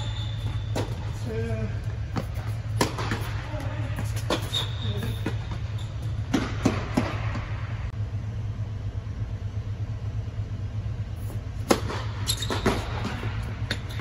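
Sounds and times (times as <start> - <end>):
tennis balls bouncing on court: 0.0 - 7.7, 11.6 - 14.0
steady low fan hum: 0.0 - 14.0
tennis balls hit by rackets: 0.4 - 7.7, 11.6 - 14.0.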